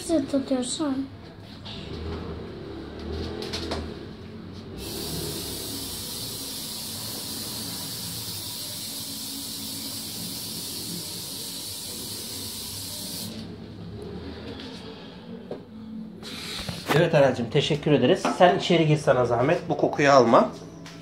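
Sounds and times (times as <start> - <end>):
aerosol spray hissing: 4.8 - 13.4.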